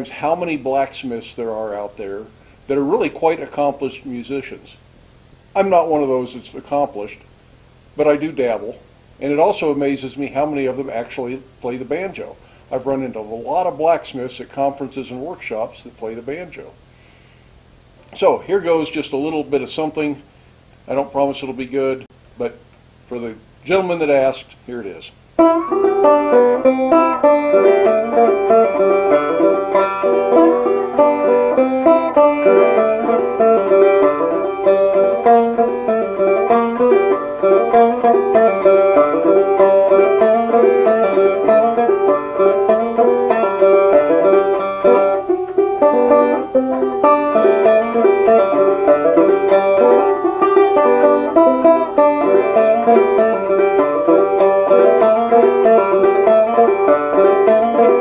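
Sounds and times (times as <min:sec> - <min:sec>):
banjo plucking: 0:00.0 - 0:04.6, 0:25.4 - 0:58.0.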